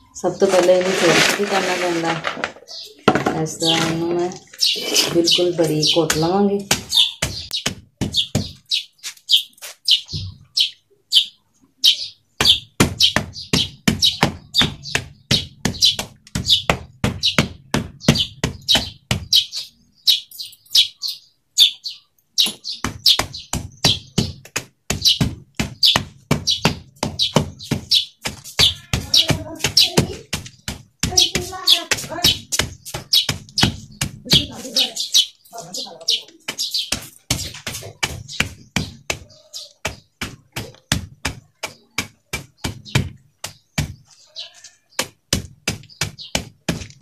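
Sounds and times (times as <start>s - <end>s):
dry clay knocking and crunching: 12.4s - 19.4s, 22.4s - 34.8s, 36.2s - 47.0s.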